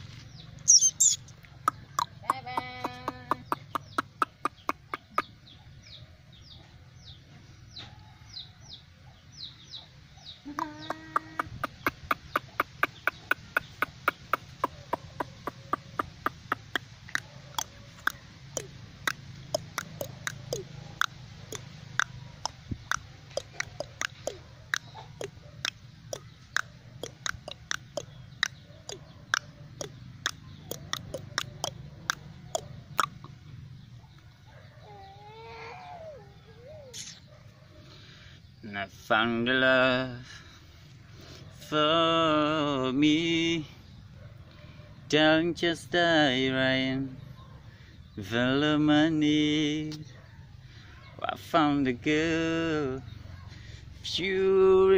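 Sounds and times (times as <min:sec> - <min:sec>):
low bird call: 0:00.0 - 0:07.1
birds cheeping: 0:00.0 - 0:54.9.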